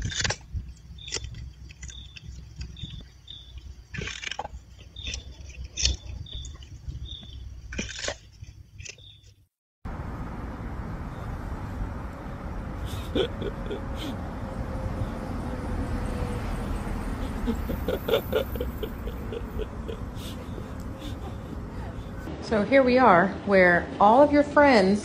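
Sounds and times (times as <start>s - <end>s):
crunching strokes: 0.0s - 9.4s
outdoor street hum: 0.0s - 25.0s.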